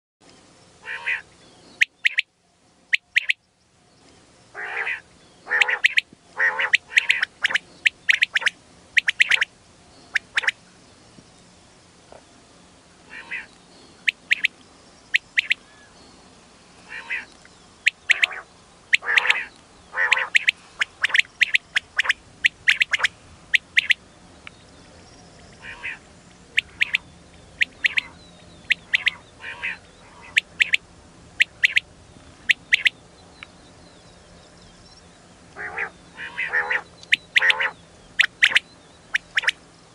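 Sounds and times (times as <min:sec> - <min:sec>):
quail calling: 0:00.8 - 0:02.3, 0:02.9 - 0:03.4, 0:04.6 - 0:09.5, 0:10.1 - 0:10.6, 0:13.1 - 0:14.5, 0:15.1 - 0:15.6, 0:16.9 - 0:24.0, 0:25.6 - 0:30.8, 0:31.4 - 0:33.0, 0:35.6 - 0:39.6.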